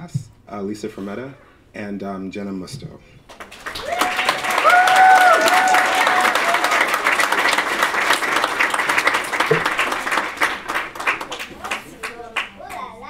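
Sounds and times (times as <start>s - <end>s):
audience clapping: 3.3s - 13.0s.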